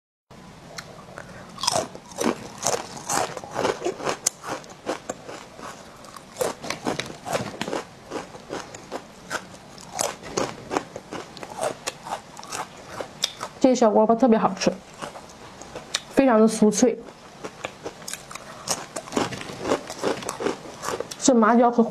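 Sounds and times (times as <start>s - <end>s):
crunchy chewing: 0.7s - 13.6s, 14.8s - 16.2s, 17.0s - 21.2s.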